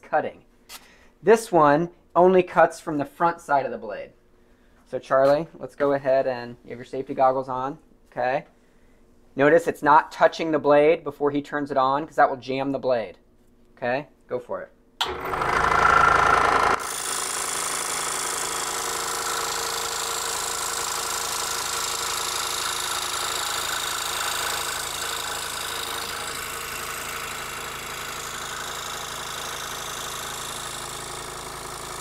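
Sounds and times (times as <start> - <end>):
scroll saw cutting: 15.0 - 32.0.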